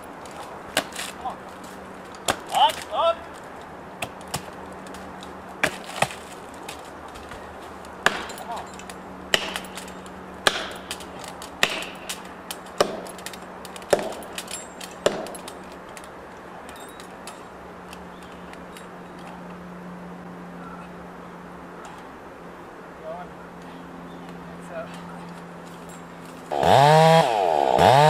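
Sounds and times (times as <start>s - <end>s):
hammer striking wedge: 8.0s - 8.4s.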